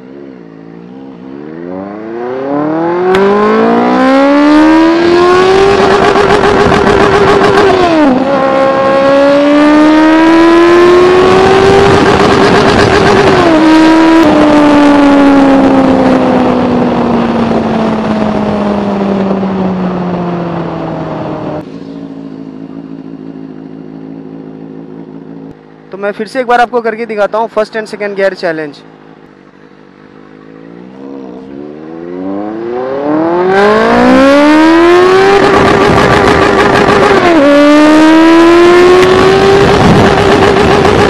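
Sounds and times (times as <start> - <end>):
motorcycle engine accelerating: 0.0 - 26.1, 28.6 - 41.0
wind rush: 38.8 - 41.0.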